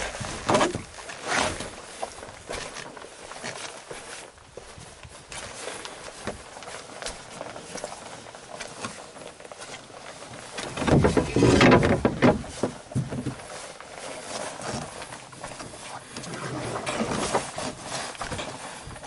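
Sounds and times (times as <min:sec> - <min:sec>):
footsteps crunching on rocky trail: 0:00.0 - 0:19.0
knocking and rumbling: 0:10.7 - 0:13.4.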